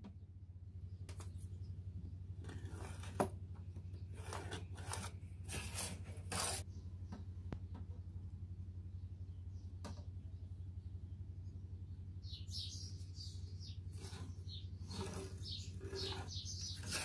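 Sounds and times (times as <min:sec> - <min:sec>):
steady low hum: 0:00.0 - 0:17.0
pencil scratching: 0:04.2 - 0:06.6, 0:14.0 - 0:17.0.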